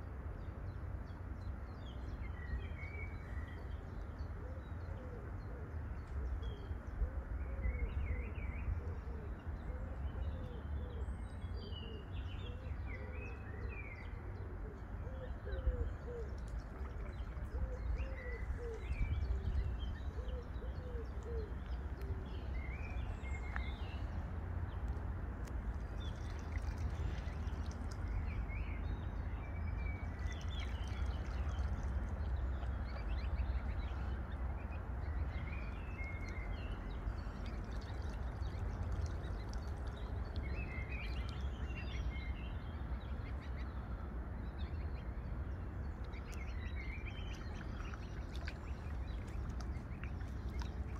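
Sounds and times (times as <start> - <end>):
steady low rumble: 0.2 - 50.9
small birds chirping: 15.2 - 43.9, 45.8 - 50.9.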